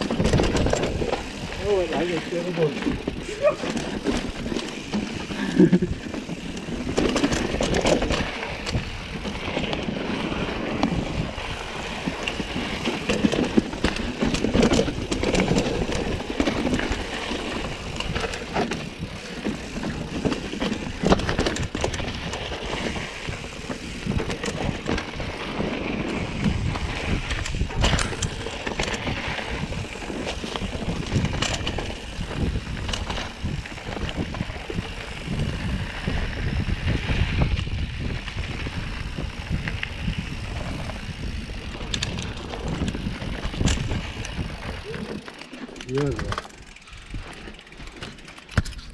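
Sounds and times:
bike rattling over rocks: 0:00.0 - 0:48.9
bike tyres on dirt trail: 0:00.0 - 0:48.9.

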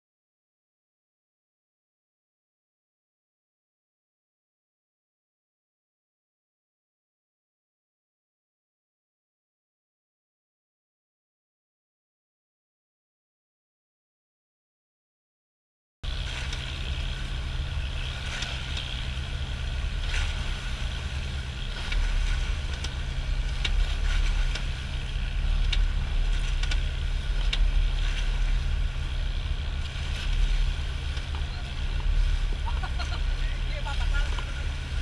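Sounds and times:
boat engine drone: 0:16.0 - 0:35.0
water splashing along hull: 0:16.0 - 0:35.0.

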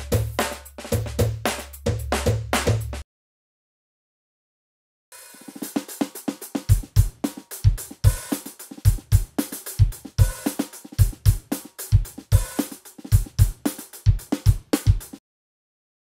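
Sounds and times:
snare drum: 0:00.0 - 0:03.0, 0:05.2 - 0:15.2
hi-hat: 0:05.3 - 0:15.2
kick drum: 0:13.1 - 0:15.0.

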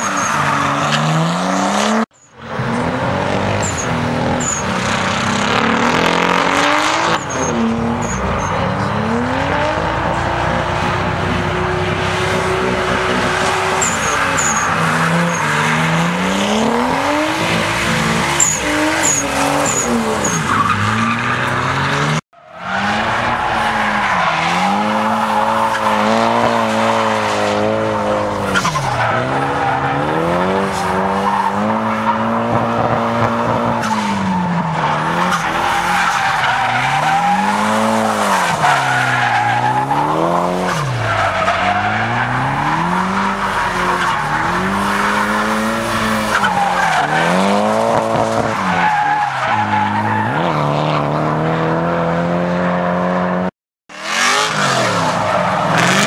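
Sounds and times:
tyres squealing: 0:03.5 - 0:32.2
car engine revving high: 0:49.6 - 0:56.0.

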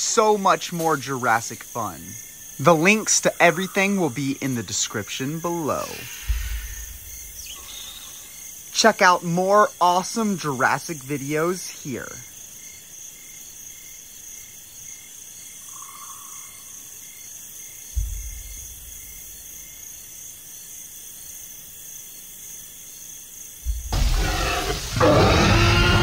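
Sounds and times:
crickets chirping: 0:00.0 - 0:26.0
loud animal roar: 0:23.9 - 0:26.0.

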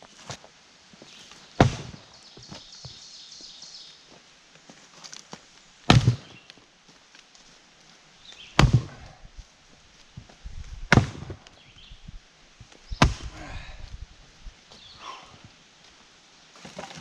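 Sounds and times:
maul cracking into wood: 0:05.9 - 0:06.4, 0:08.6 - 0:09.2, 0:10.9 - 0:11.6, 0:13.0 - 0:13.4.

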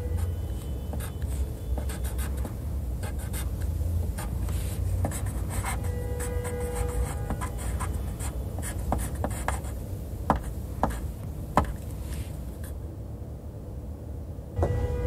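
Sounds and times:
steady tone with overtones: 0:14.6 - 0:15.0.

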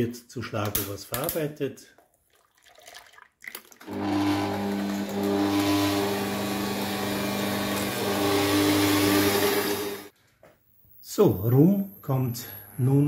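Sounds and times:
electric mixer whipping cream: 0:03.9 - 0:10.1.

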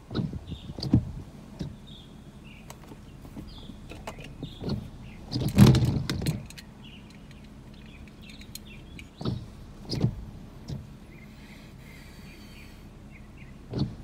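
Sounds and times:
gusty wind buffeting microphone: 0:00.0 - 0:11.3
faint bird chirps: 0:11.1 - 0:13.6.

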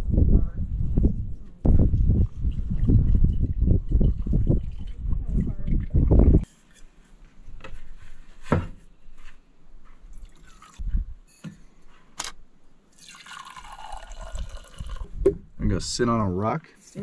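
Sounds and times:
coffee pouring into a mug: 0:13.0 - 0:15.1.

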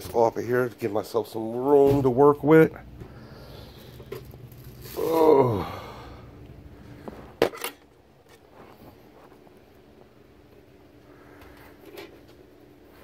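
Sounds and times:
plastic wrapping rustling: 0:03.7 - 0:05.5
man groaning: 0:04.9 - 0:06.2.

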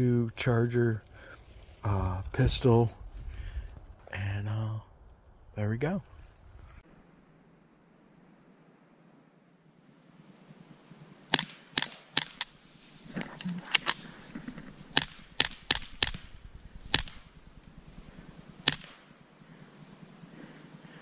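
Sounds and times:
suppressed pistol shots: 0:11.3 - 0:12.5, 0:14.9 - 0:17.3, 0:18.6 - 0:19.1.

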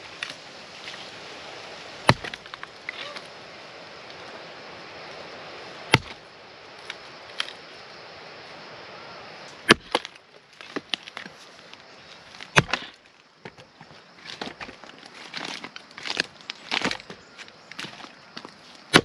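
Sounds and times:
blade chopping firewood: 0:02.0 - 0:03.2, 0:05.9 - 0:06.2, 0:09.6 - 0:11.3, 0:12.4 - 0:13.6.

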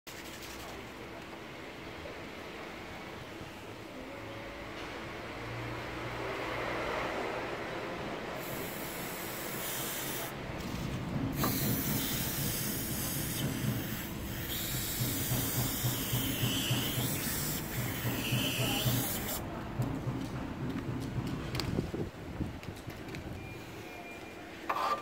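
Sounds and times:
aerosol can spraying hiss: 0:08.4 - 0:10.3, 0:11.4 - 0:19.4.

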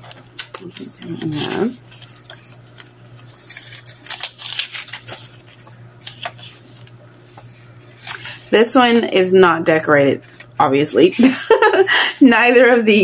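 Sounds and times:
paper pages rustling: 0:00.0 - 0:09.0.

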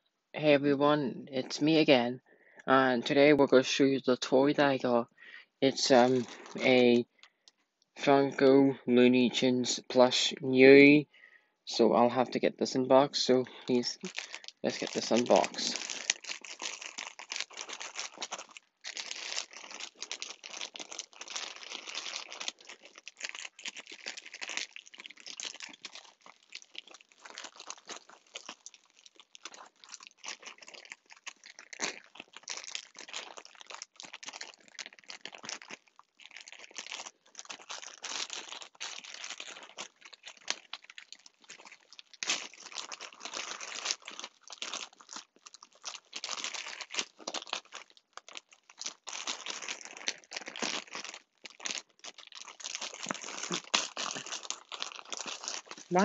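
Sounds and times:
packaging crinkling: 0:05.9 - 0:07.6, 0:13.4 - 0:56.0.

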